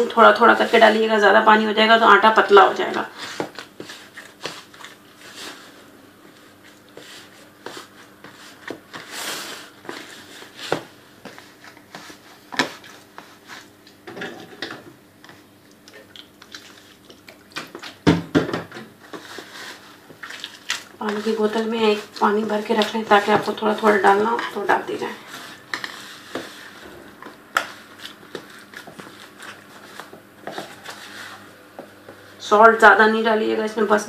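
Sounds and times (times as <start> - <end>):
hands rubbing dough: 0.0 - 14.0, 19.0 - 32.4.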